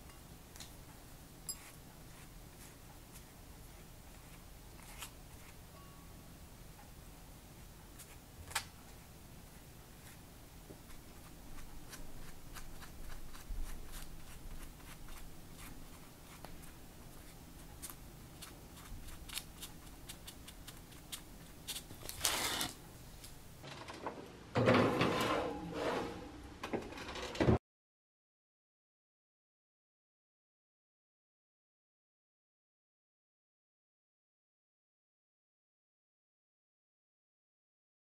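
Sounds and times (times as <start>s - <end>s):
pastry brush dabbing dough: 0.5s - 6.1s, 6.8s - 22.6s
metal baking sheet scraping rack: 22.1s - 22.8s, 23.6s - 27.6s.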